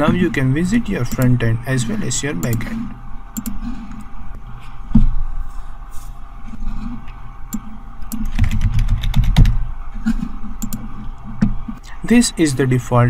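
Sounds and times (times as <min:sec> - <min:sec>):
faint steady hum: 0:00.0 - 0:13.0
keyboard typing: 0:07.5 - 0:11.5.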